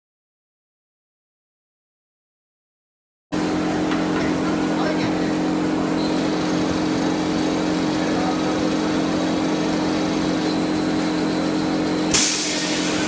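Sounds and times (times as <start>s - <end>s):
machine motor humming: 3.4s - 13.0s.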